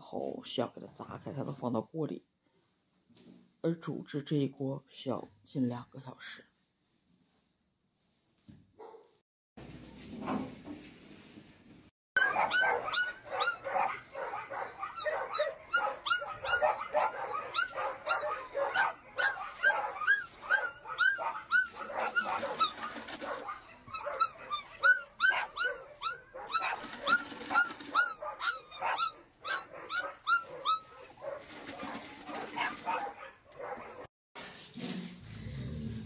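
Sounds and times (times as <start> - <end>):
dogs barking and yelping: 12.2 - 34.1.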